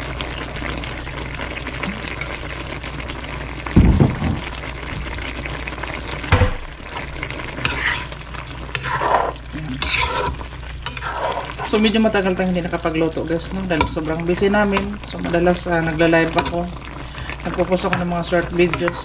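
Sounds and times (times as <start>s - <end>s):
food sizzling in a wok: 0.0s - 19.0s
spatula scraping a pan: 6.8s - 11.9s, 18.6s - 19.0s.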